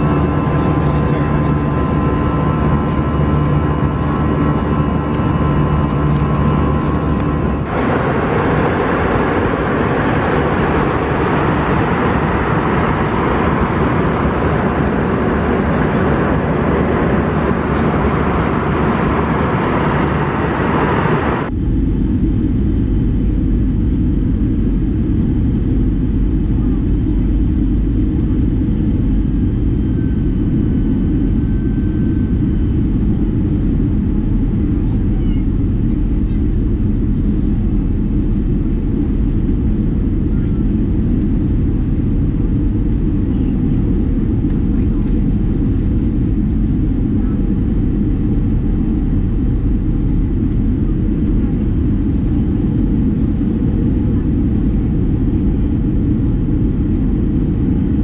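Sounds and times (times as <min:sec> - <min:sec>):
airplane cabin rumble: 0:00.0 - 0:58.0.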